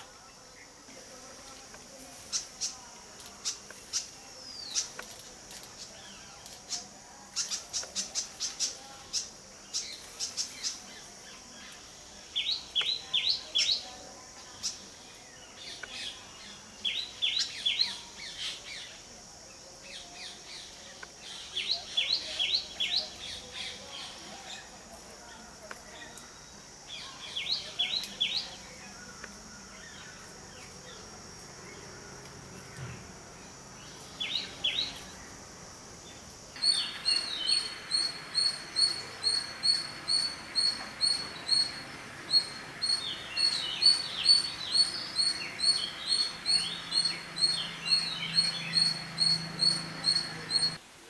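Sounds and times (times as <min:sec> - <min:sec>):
small birds chirping: 0:00.0 - 0:50.8
high-pitched insect drone: 0:33.4 - 0:50.8.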